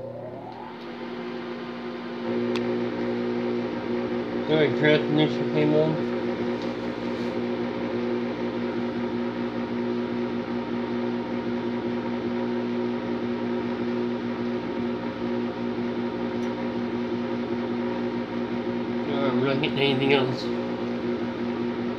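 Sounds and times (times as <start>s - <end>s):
furnace motor humming and whirring: 0.0s - 21.9s.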